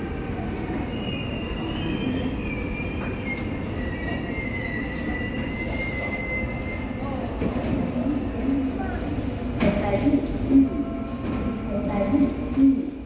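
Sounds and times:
train brakes squealing: 0.0 - 7.3.

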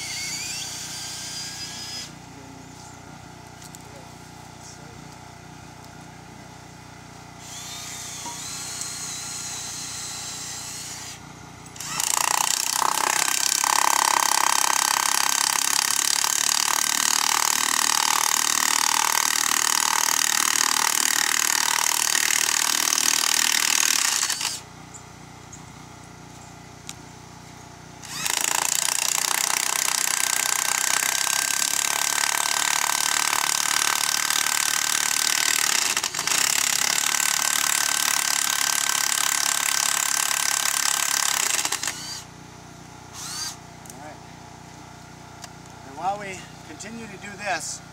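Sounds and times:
electric drill boring into wood: 0.0 - 2.2, 7.4 - 24.6, 28.0 - 42.3, 43.1 - 43.6.

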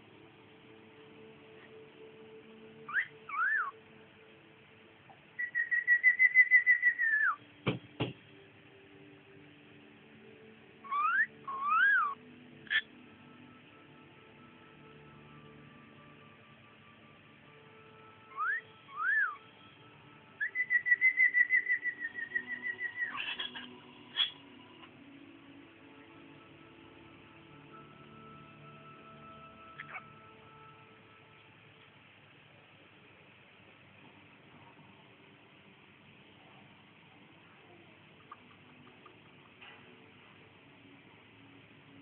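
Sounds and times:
cockatiel chirps: 2.9 - 3.8, 5.4 - 7.4, 10.8 - 12.9, 18.3 - 19.4, 20.4 - 24.4, 29.7 - 30.1
cockatiel whistling: 2.9 - 3.8, 5.4 - 7.4, 10.8 - 12.9, 18.3 - 19.4, 20.4 - 24.4, 29.8 - 30.0
sharp knock: 7.6 - 8.2.

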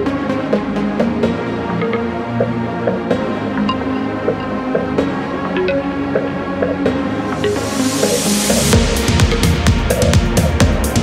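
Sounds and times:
music with held notes and beat: 0.0 - 11.0.

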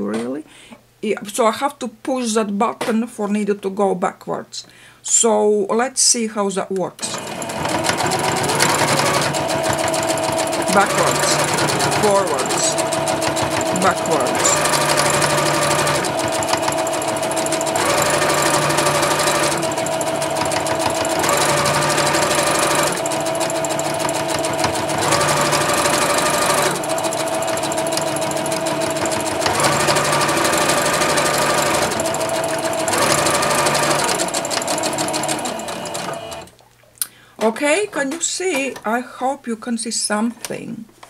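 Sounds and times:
sewing machine stitching: 7.0 - 36.6.

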